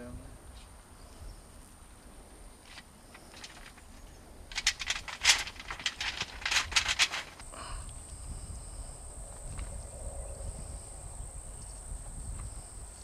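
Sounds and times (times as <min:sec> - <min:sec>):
dry soil scratching: 0:02.6 - 0:07.5.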